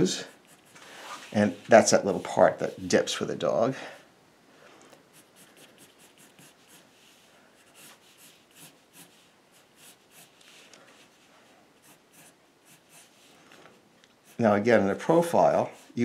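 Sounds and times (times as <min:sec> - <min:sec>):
pencil scratching on paper: 0:00.0 - 0:01.6, 0:05.1 - 0:13.3, 0:14.2 - 0:14.5.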